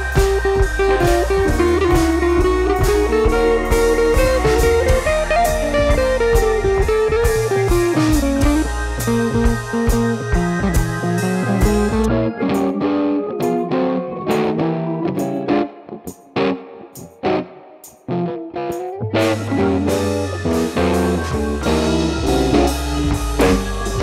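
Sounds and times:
steady drum beat: 0:00.0 - 0:12.1, 0:19.2 - 0:24.0
low bass line: 0:00.0 - 0:12.8, 0:19.2 - 0:24.0
guitar melody: 0:00.0 - 0:24.0.

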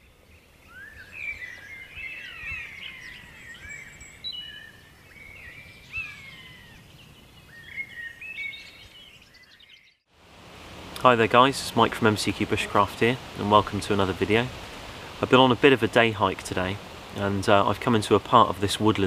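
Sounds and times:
birds chirping and whistling: 0:00.0 - 0:10.0.

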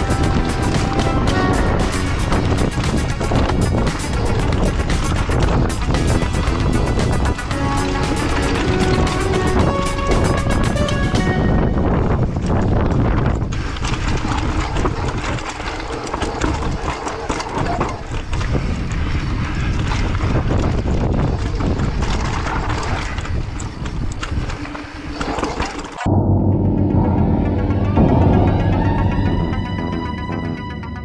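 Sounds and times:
low droning music: 0:00.0 - 0:12.5, 0:26.1 - 0:31.0
bike rattling and knocking: 0:00.0 - 0:26.1
wind rumbling on microphone: 0:00.0 - 0:29.4.

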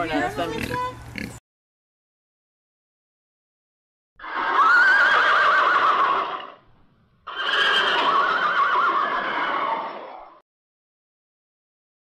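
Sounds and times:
horse whinnying: 0:04.2 - 0:06.6, 0:07.3 - 0:10.4.

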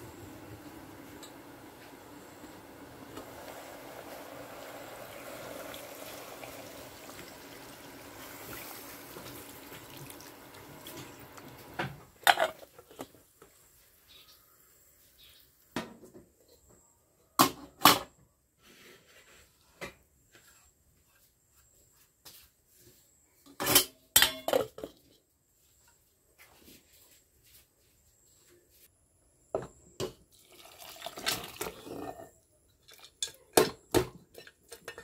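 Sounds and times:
water pouring into metal pot: 0:02.5 - 0:11.8, 0:30.4 - 0:32.1
pots and dishes clanking: 0:10.8 - 0:13.1, 0:23.5 - 0:25.1, 0:33.0 - 0:35.0.

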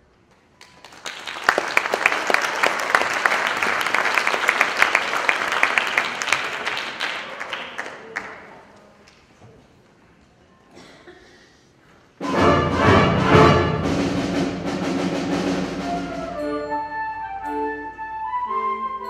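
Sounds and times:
audience applauding: 0:00.4 - 0:08.8
symphonic band music: 0:12.2 - 0:19.0.

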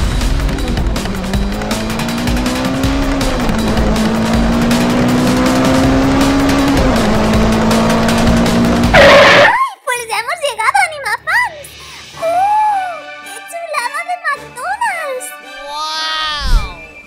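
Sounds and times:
car engine drone: 0:00.0 - 0:09.5
background music: 0:00.0 - 0:17.0.

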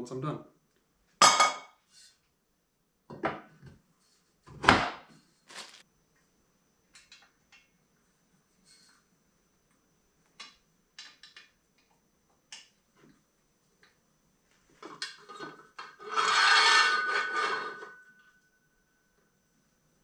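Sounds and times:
metal-on-metal scrape: 0:15.2 - 0:18.2.

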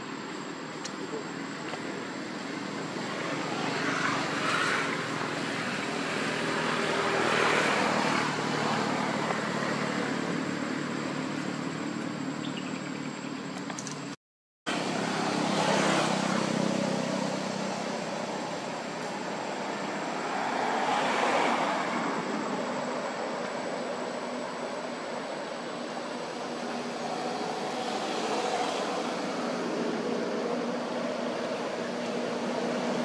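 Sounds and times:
low hum of distant traffic: 0:00.0 - 0:33.0.

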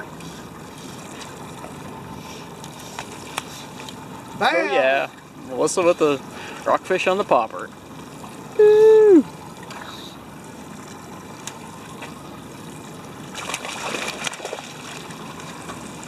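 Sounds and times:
water washing: 0:00.0 - 0:16.0
held vocal cry: 0:08.6 - 0:09.3
fish thrashing and splashing: 0:10.6 - 0:16.0.

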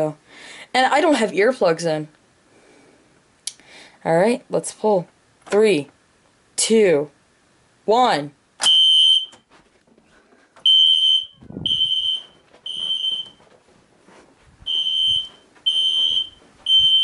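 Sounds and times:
fire alarm horn beeping: 0:08.6 - 0:09.4, 0:10.7 - 0:13.4, 0:14.7 - 0:17.0.

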